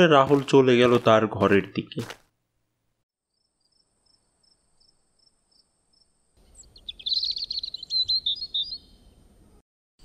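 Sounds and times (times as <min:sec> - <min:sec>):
crickets chirping: 0:03.3 - 0:06.4
birds chirping and trilling: 0:03.3 - 0:09.6.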